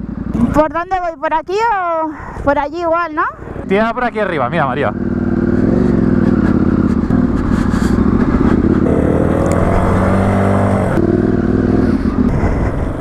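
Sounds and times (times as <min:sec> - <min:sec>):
motorcycle engines running: 0:00.0 - 0:13.0
dirt bike engine revving: 0:04.5 - 0:13.0.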